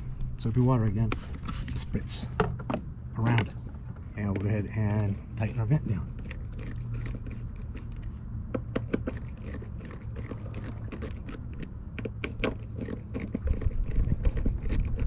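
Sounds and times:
wind rumble on microphone: 13.4s - 15.0s.

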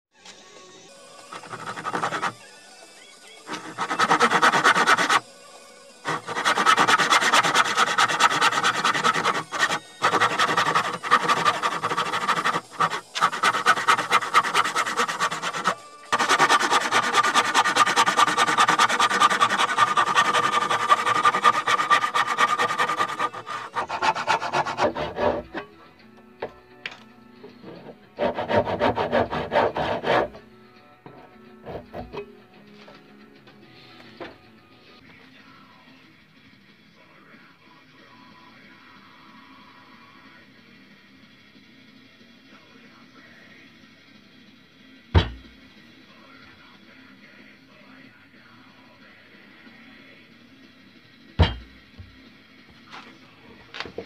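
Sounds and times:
hand saw cutting wood: 1.3s - 2.4s, 3.5s - 5.2s, 6.0s - 25.7s, 27.6s - 30.4s, 31.6s - 32.2s.

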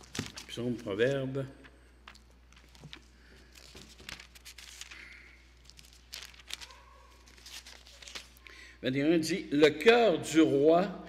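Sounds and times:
book pages rustling: 0.0s - 1.2s, 2.0s - 8.4s.

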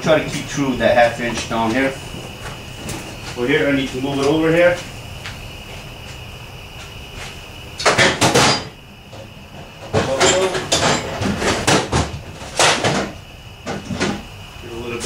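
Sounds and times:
sheet metal clunking and rattling: 7.8s - 14.2s.

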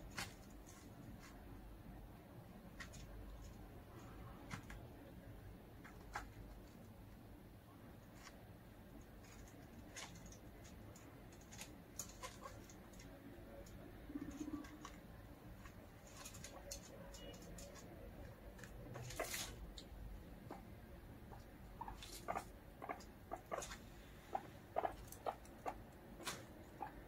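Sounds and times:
guinea pigs rustling hay: 0.0s - 1.4s, 8.0s - 20.6s, 21.2s - 27.0s.

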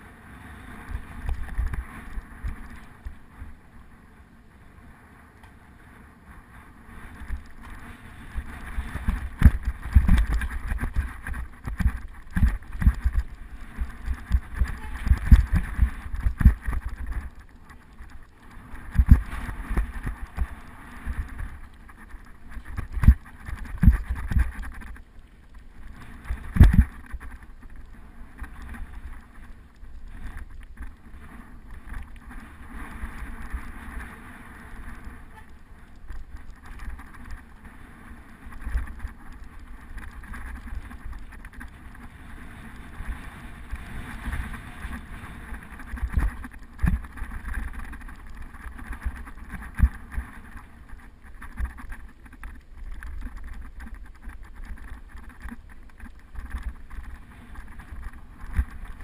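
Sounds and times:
bike rattling on gravel trail: 0.0s - 59.0s
wind buffeting microphone: 0.0s - 59.0s
bike knocking over bumps: 8.4s - 24.9s.

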